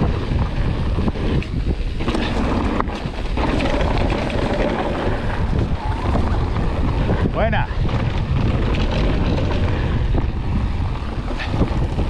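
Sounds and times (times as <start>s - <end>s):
bike knocks and rattles: 0.0s - 12.0s
bike tyres rumbling on rough ground: 0.0s - 12.0s
wind buffeting microphone: 0.0s - 12.0s.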